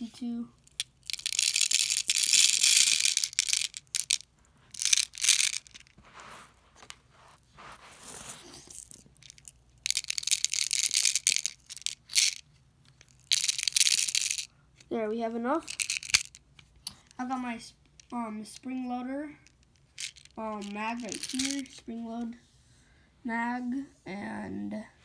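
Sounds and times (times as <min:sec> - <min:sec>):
plastic pellets rattling: 0:00.6 - 0:06.0, 0:08.0 - 0:12.4, 0:13.0 - 0:14.5, 0:15.6 - 0:17.2, 0:19.4 - 0:21.8
pellets scooped off carpet: 0:05.8 - 0:09.0.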